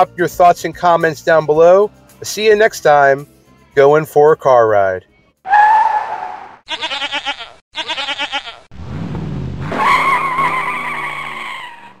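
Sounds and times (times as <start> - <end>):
tire squeal: 5.5 - 6.6, 9.6 - 12.0
goat bleating: 6.7 - 8.7.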